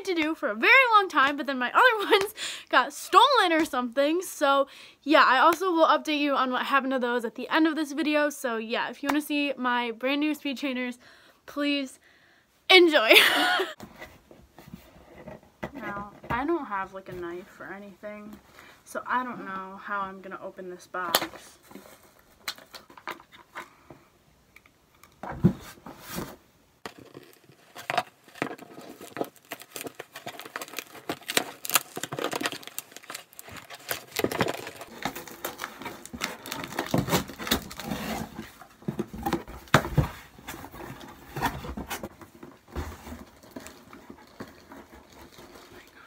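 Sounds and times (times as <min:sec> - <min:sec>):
cardboard scraping and crinkling: 0:25.3 - 0:46.0
packing tape ripping: 0:26.9 - 0:38.4.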